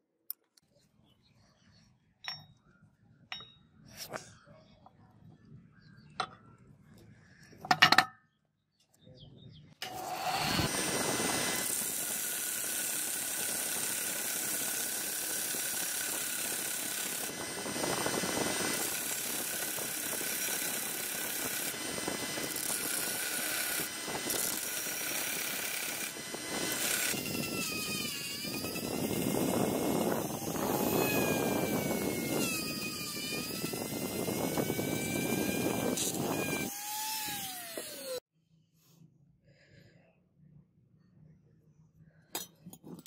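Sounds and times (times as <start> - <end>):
belt sander grinding metal: 9.8 - 38.2
rotary tool whining: 9.8 - 38.3.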